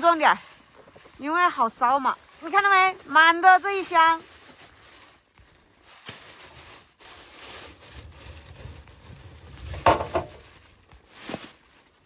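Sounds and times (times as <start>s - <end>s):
plastic bags rustling: 0.0s - 12.0s
coal clattering: 5.4s - 12.0s.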